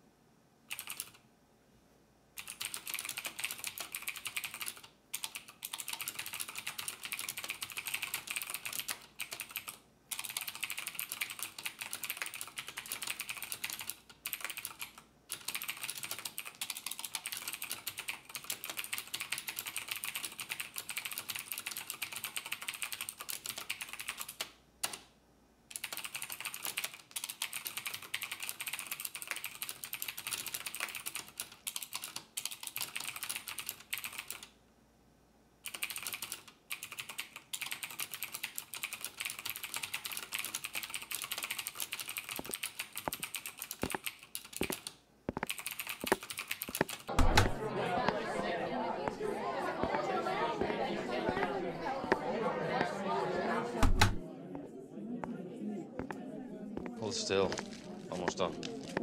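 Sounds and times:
typing on computer keyboard: 0.7s - 1.2s, 2.4s - 25.1s, 25.7s - 34.6s, 35.6s - 47.5s.

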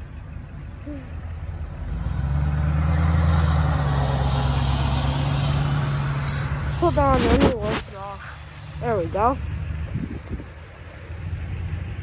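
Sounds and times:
truck engine driving past: 1.2s - 12.0s
snow hissing off plow blade: 6.8s - 8.2s.

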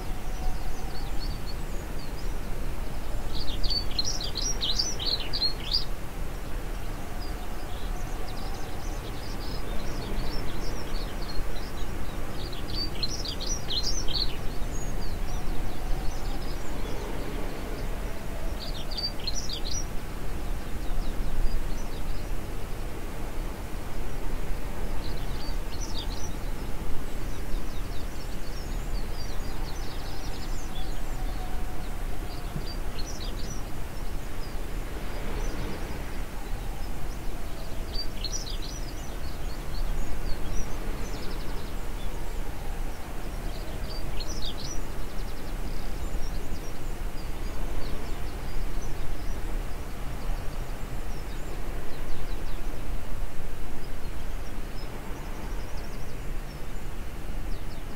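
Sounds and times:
birds chirping: 24.9s - 52.7s.

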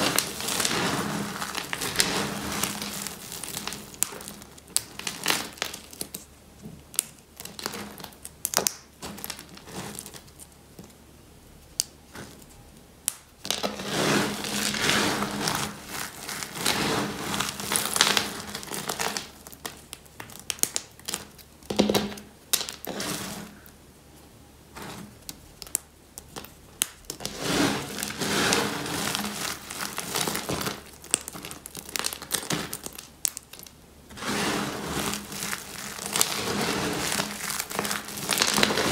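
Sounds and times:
soap shards crunching and crackling: 25.3s - 38.9s.

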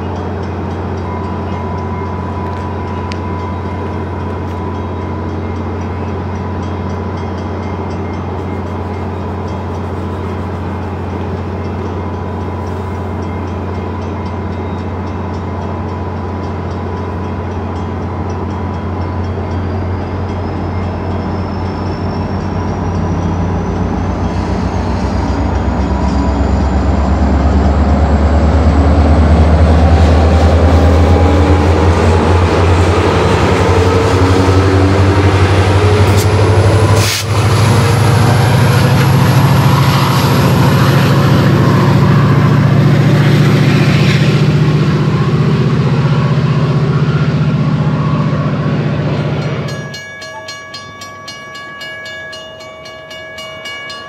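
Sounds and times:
diesel locomotive passing: 0.0s - 54.0s.

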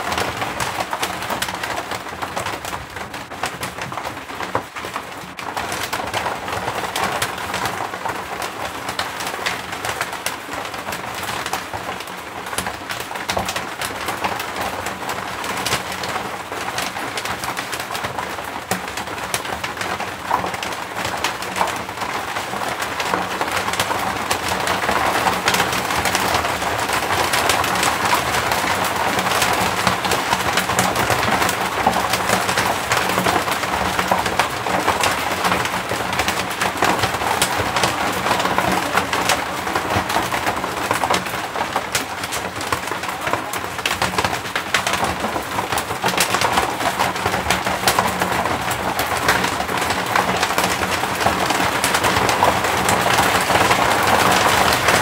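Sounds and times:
rain pattering on a roof: 0.0s - 55.0s.

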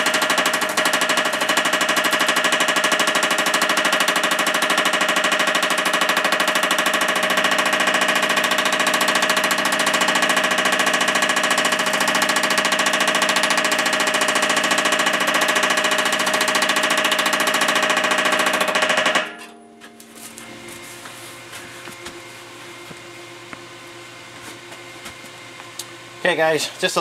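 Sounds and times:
power hammer striking sheet metal: 0.0s - 19.9s.

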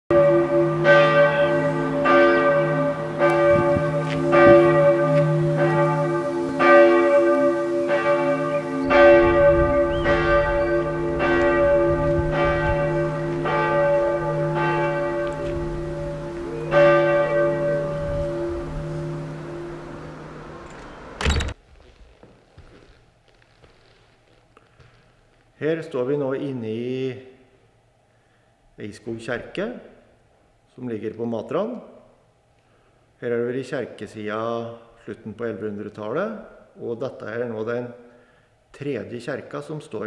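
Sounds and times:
church bell ringing: 0.1s - 21.2s.

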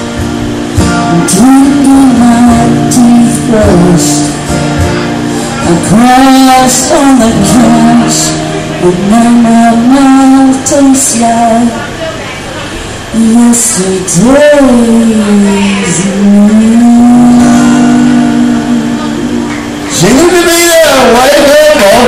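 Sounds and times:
acoustic guitar strummed: 0.0s - 22.0s
woman singing: 1.0s - 4.4s, 5.6s - 12.3s, 13.1s - 19.6s.

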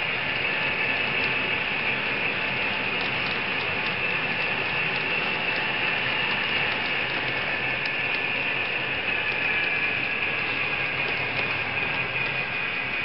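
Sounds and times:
model train wheels clattering: 0.0s - 13.0s.

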